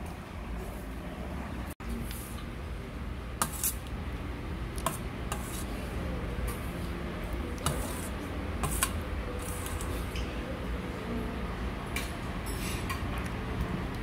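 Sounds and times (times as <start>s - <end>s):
utensils clinking against dishes: 12.0s - 13.2s.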